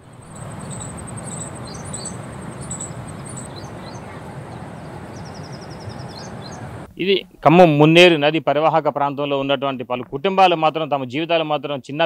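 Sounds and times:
birds chirping: 0:00.0 - 0:06.9
fast even bird trill: 0:00.0 - 0:06.9
low background rush: 0:00.0 - 0:08.3.

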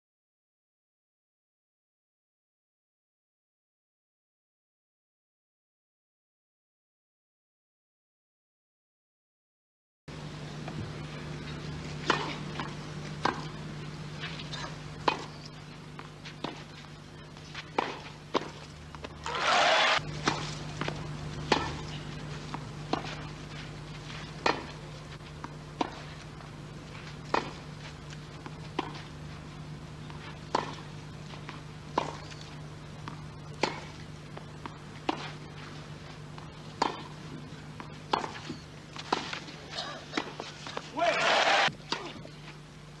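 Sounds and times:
steady low hum: 0:10.1 - 0:43.0
tennis ball bouncing: 0:10.6 - 0:42.3
tennis ball struck by racquets: 0:12.0 - 0:15.4, 0:17.6 - 0:24.8, 0:25.4 - 0:26.1, 0:27.0 - 0:27.7, 0:28.4 - 0:29.2, 0:30.0 - 0:32.4, 0:33.0 - 0:35.6, 0:36.3 - 0:42.2.

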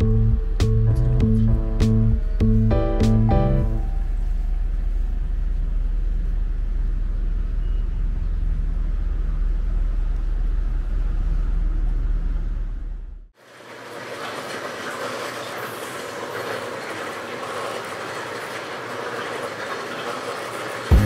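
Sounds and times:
motor vehicle engine rumble: 0:00.0 - 0:13.3.

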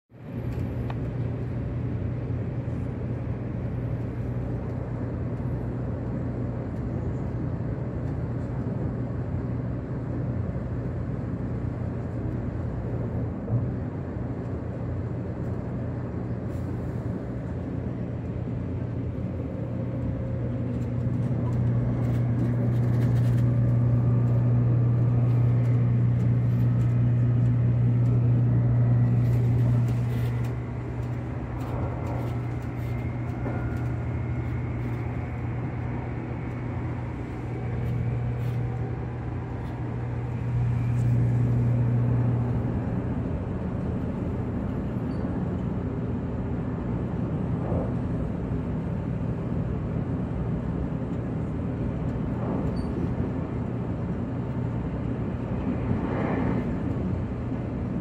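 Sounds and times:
train running hum: 0:00.1 - 0:58.0
faint rising whine: 0:14.9 - 0:58.0.

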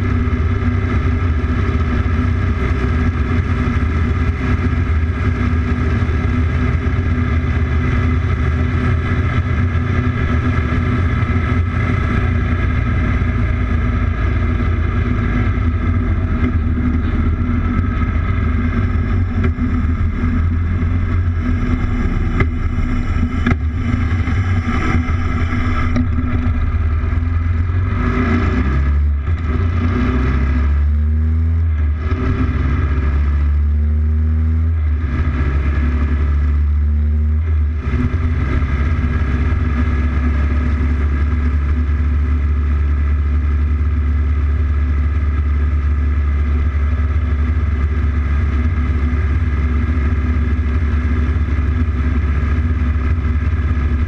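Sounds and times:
motorcycle engine running: 0:00.0 - 0:54.0
wind rush: 0:09.0 - 0:28.8.

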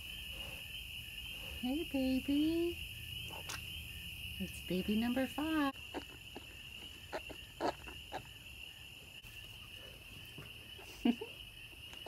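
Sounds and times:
crickets chirring: 0:00.0 - 0:12.0
piglet calling: 0:05.7 - 0:08.4.

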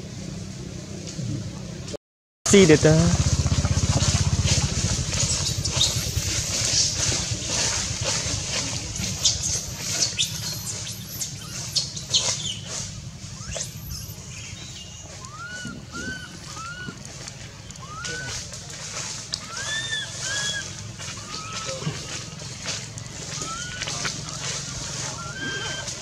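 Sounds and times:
low rumble: 0:02.6 - 0:25.3
leafy branches rustling: 0:02.6 - 0:26.0
squeaky chirps: 0:09.0 - 0:18.5, 0:19.4 - 0:22.4, 0:25.1 - 0:26.0.

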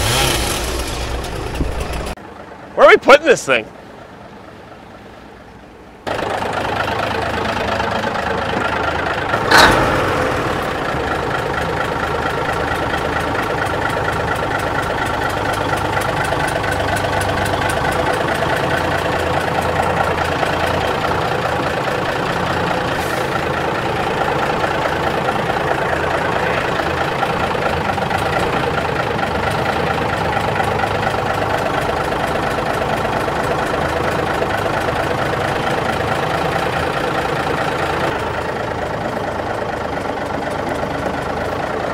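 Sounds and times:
diesel engine idling: 0:00.0 - 0:41.9.

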